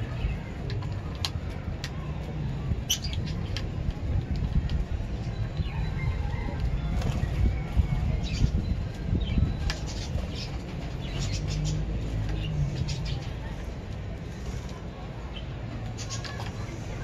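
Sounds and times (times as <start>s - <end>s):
lovebirds chirping and squeaking: 2.7s - 3.7s, 5.2s - 13.6s, 15.3s - 17.0s.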